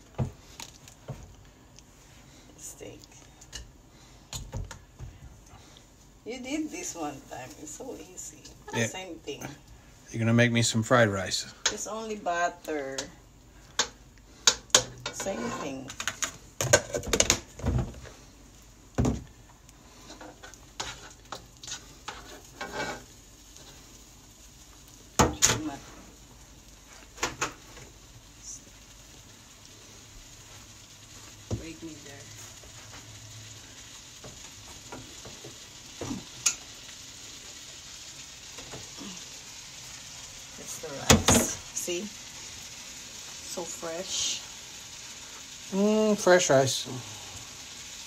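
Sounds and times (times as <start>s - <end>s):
butter sizzling in a wok: 0.0s - 48.0s
spoon scraping and knocking wok: 13.8s - 17.4s, 20.1s - 23.8s.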